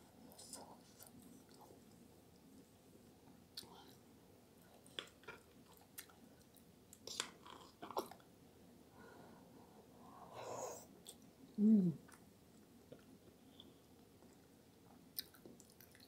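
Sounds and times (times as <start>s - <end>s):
closed-mouth mmm: 11.6s - 12.2s
chewing with wet mouth sounds: 12.9s - 16.0s.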